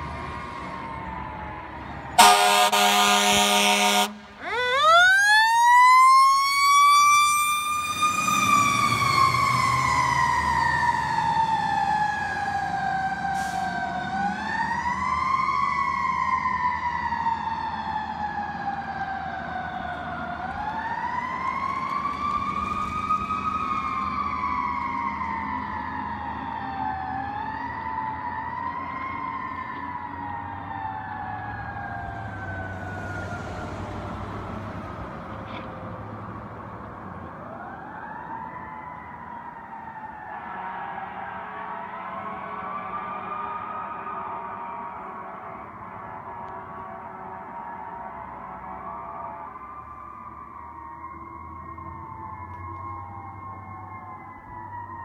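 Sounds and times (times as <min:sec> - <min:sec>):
fire engine siren wailing: 0:00.0 - 0:55.0
fire engine horn blasts: 0:02.2 - 0:04.7, 0:13.4 - 0:13.7, 0:40.1 - 0:49.6.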